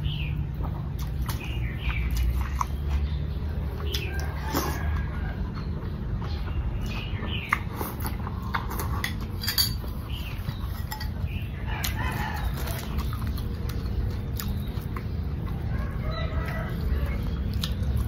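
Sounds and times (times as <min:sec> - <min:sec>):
chickens clucking: 0:09.9 - 0:18.0.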